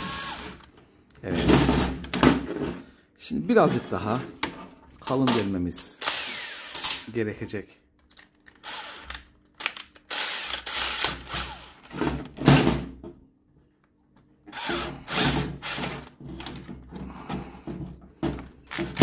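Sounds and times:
electric drill boring: 0.0s - 0.7s, 6.0s - 6.8s, 8.6s - 9.1s, 10.1s - 11.8s, 14.5s - 16.0s.

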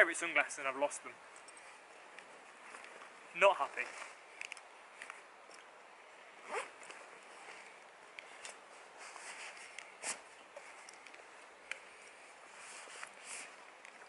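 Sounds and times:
zip pulled: 6.3s - 11.0s
fabric rustling: 6.3s - 14.0s.

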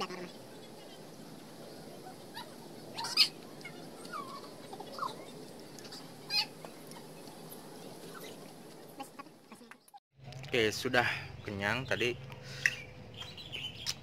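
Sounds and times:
chickens clucking: 1.9s - 10.0s.

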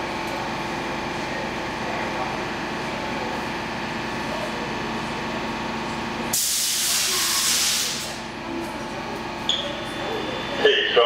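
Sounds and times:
train car humming: 0.0s - 11.0s
compressed air hiss: 6.4s - 8.1s.

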